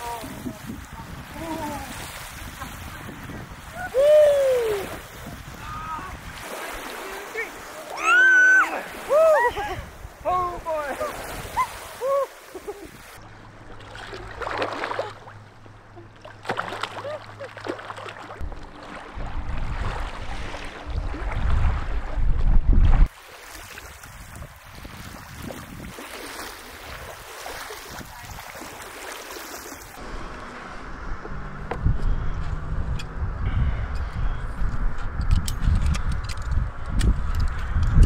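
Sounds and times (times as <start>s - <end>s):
wind on microphone: 0.0s - 6.9s, 18.4s - 23.1s, 23.8s - 26.1s, 29.8s - 38.0s
water lapping and splashing: 0.0s - 31.5s.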